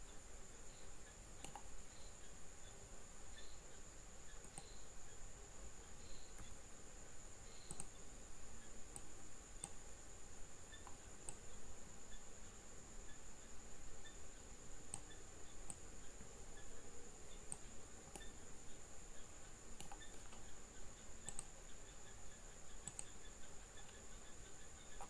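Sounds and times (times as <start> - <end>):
faint high-pitched whine: 0.0 - 25.0
mouse and keyboard clicks: 1.4 - 1.7, 4.4 - 4.8, 7.6 - 8.0, 14.9 - 15.8, 17.5 - 18.3, 19.8 - 20.5, 21.2 - 21.6, 22.8 - 23.2.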